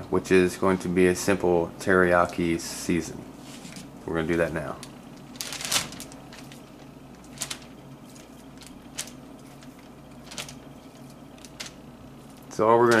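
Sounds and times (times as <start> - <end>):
plastic bag crinkling: 4.6 - 13.0.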